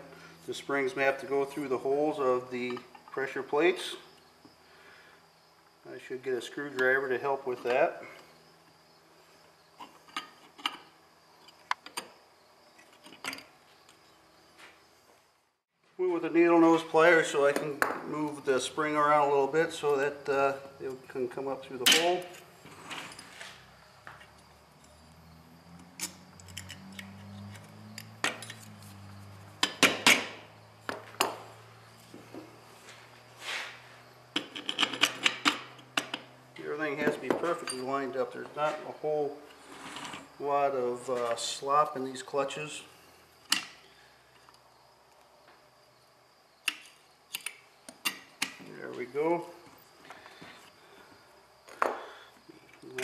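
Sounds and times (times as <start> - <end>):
metal tools clicking: 25.9 - 28.8
metal clutch parts clinking: 26.0 - 29.0
short metal scrapes: 39.5 - 40.3.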